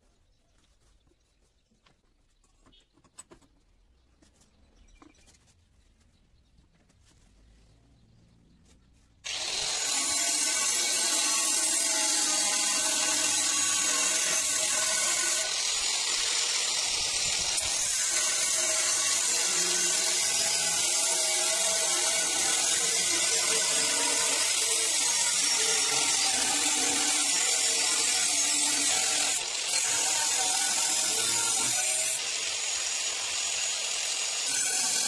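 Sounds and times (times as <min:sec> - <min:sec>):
angle grinder cutting steel: 0:09.3 - 0:35.0.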